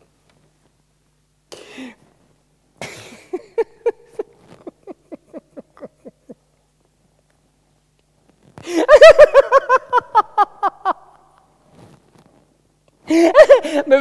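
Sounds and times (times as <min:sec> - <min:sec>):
man laughing rhythmically: 0:02.8 - 0:06.6, 0:08.7 - 0:11.2, 0:13.1 - 0:14.0.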